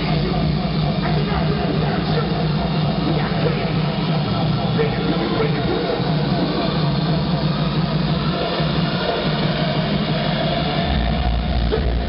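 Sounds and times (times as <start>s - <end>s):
crowd noise: 0.0s - 12.0s
loud electronic dance music: 0.0s - 12.0s
low drone: 0.0s - 12.0s.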